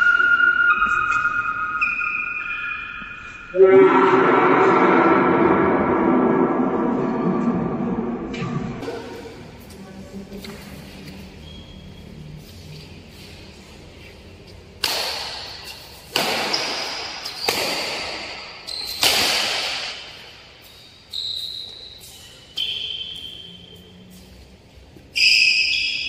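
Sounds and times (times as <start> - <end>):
high shoe squeaks: 0.0 - 3.5, 10.4 - 13.4, 18.4 - 19.2, 20.1 - 26.0
racket smacking shuttlecock: 14.5 - 20.8.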